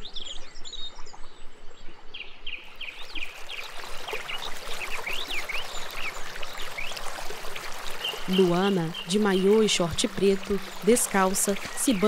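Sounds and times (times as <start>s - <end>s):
flowing river water: 0.0s - 12.0s
birds chirping: 7.9s - 12.0s.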